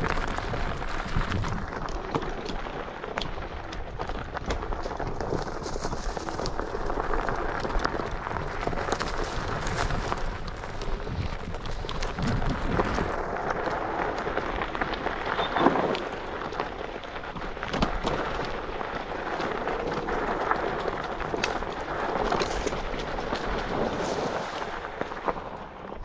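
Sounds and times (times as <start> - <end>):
scooter rumble and rattle: 0.0 - 26.0
wind buffeting microphone: 8.0 - 17.8.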